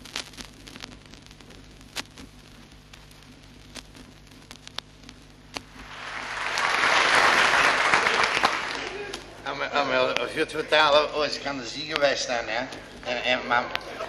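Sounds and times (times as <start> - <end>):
faint steady hum: 0.0 - 14.0
vinyl record clicks and crackle: 0.0 - 14.0
audience applause: 5.8 - 9.3.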